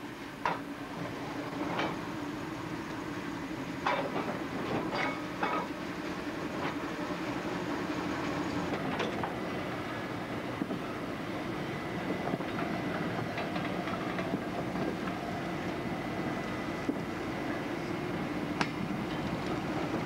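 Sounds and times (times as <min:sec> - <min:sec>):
train wheels rumbling on rails: 0:03.7 - 0:20.0
wheels clicking over rail joints: 0:03.8 - 0:05.8, 0:12.2 - 0:15.2.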